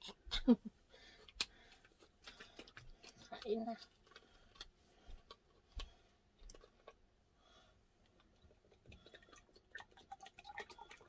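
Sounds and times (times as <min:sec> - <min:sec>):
faint clicks and taps: 0:01.2 - 0:07.1.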